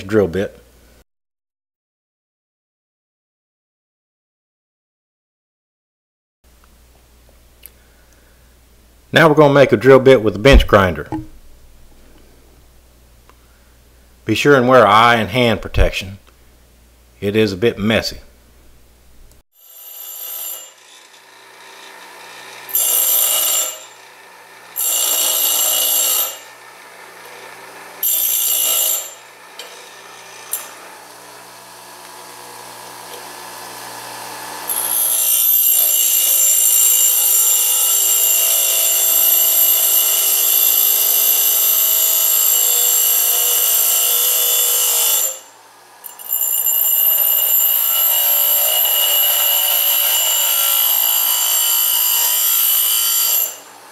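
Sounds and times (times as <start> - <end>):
grinder grinding metal pipe: 19.6 - 53.9
motor humming faintly: 20.8 - 28.0.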